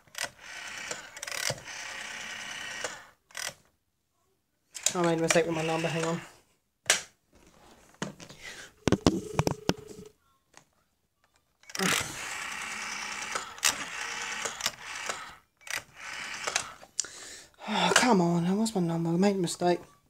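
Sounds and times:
rotary dial whirring: 0.0 - 3.6, 4.8 - 6.4, 11.6 - 17.0
dial tone: 8.8 - 10.1.

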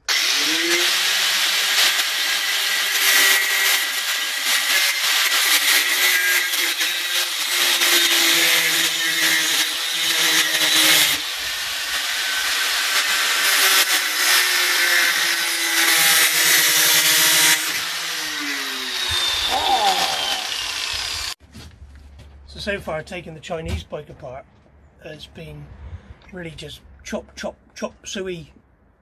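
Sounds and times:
angle grinder cutting steel: 0.0 - 21.4
grinder winding down: 0.0 - 21.4.

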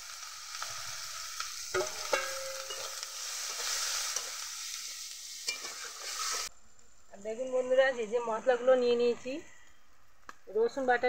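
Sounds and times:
onions sizzling in hot oil: 0.0 - 6.5
metal spatula clinking on pan: 1.8 - 3.0.

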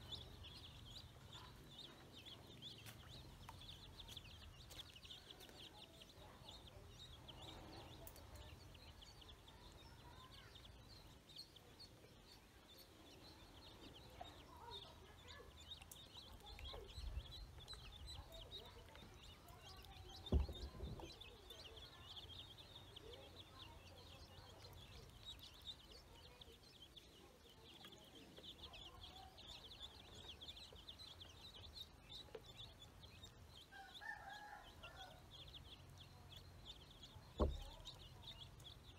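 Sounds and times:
ducklings and chicks peeping: 0.0 - 38.9
low thump: 20.3 - 21.2, 37.4 - 37.8.

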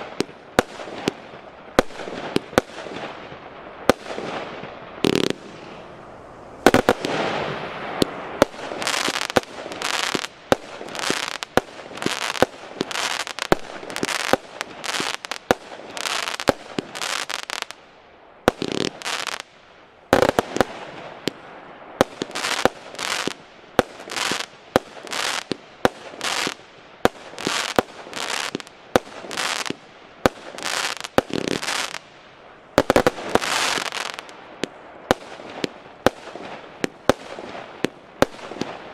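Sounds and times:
firework star bursts: 32.8 - 38.9.

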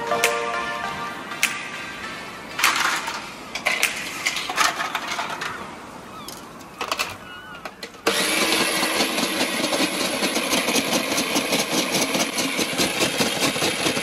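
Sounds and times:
ice machine grinding ice: 8.0 - 14.0.

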